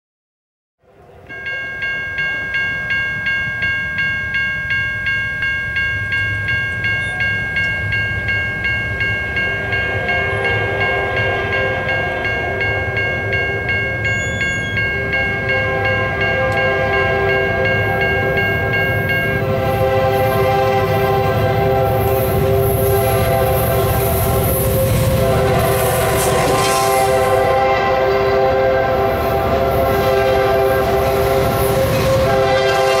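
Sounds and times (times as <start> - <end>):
train rumble: 0.8 - 33.0
railroad crossing bell ringing: 0.9 - 33.0
train horn: 9.4 - 33.0.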